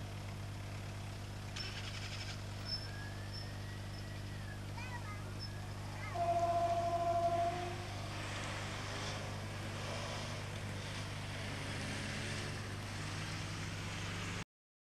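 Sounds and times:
cars driving past: 0.0s - 14.4s
horn steady note: 5.9s - 8.4s.

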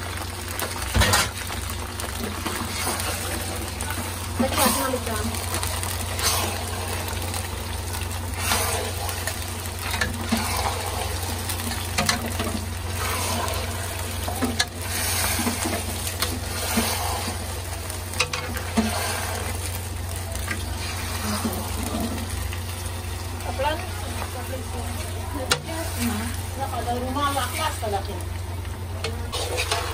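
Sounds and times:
mixture sizzling: 0.0s - 29.9s
metal spatula scraping a pan: 8.3s - 17.6s, 18.2s - 19.6s, 29.0s - 29.9s.

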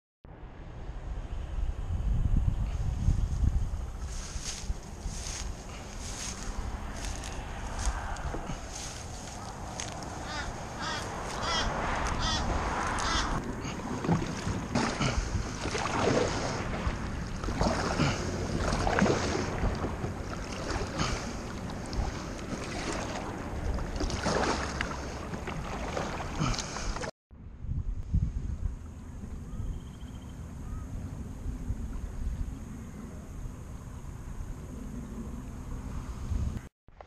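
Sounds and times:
wind on microphone: 0.6s - 36.7s
kayak paddle splashing in water: 7.1s - 27.1s.

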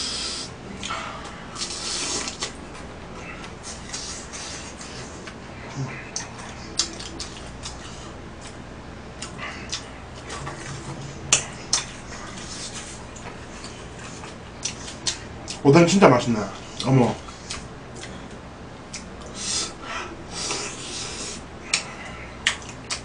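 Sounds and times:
chewing: 1.6s - 8.6s, 9.2s - 15.6s, 16.6s - 19.4s, 20.4s - 23.0s.

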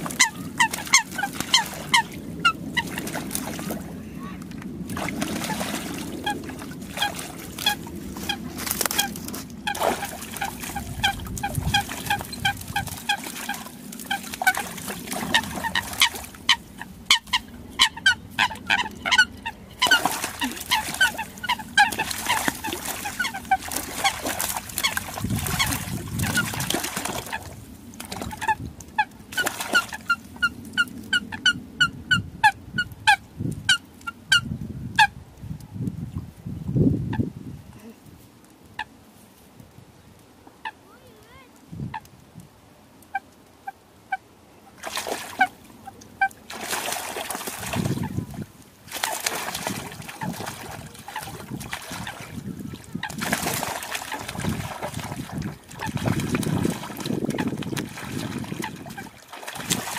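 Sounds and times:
coots calling: 15.2s - 25.7s.

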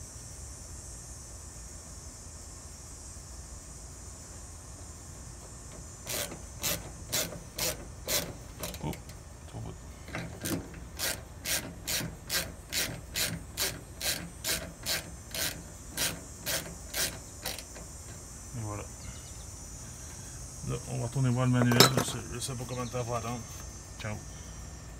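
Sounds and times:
ratchet wrench clicking: 6.0s - 9.2s, 10.1s - 18.2s.

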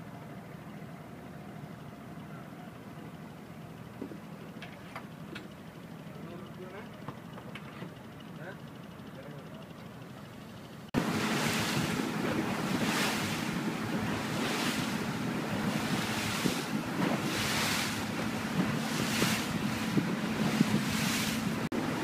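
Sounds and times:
boat engine droning: 0.0s - 22.0s
rushing water: 11.0s - 22.0s
wind buffeting microphone: 11.0s - 22.0s.

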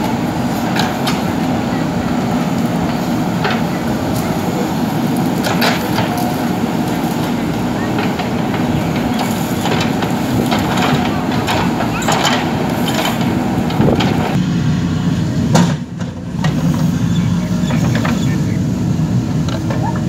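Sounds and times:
diesel engine running under load: 0.0s - 20.0s
digging bucket clanking and scraping: 5.3s - 14.4s.

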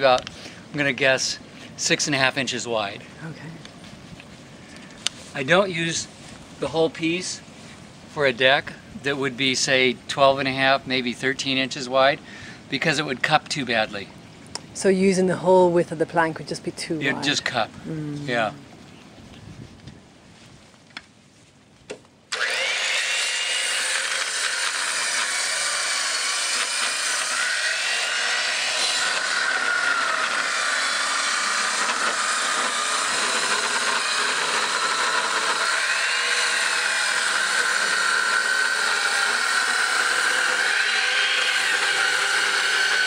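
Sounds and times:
circular saw cutting wood: 22.3s - 43.0s.

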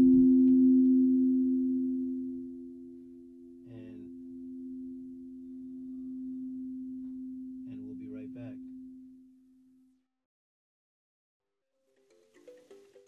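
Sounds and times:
singing bowls ringing: 0.0s - 9.8s
soft voice: 3.7s - 4.1s, 7.7s - 8.6s.

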